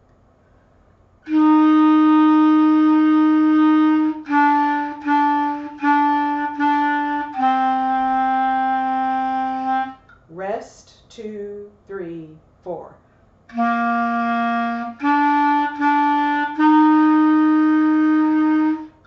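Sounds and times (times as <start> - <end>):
clarinet playing slow line: 1.2 - 10.1, 13.5 - 19.0.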